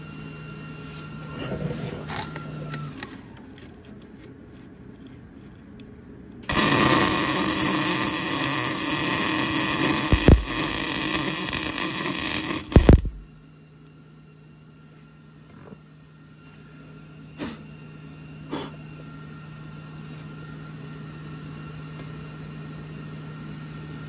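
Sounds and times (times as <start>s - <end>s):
welder hissing: 6.4s - 13.4s.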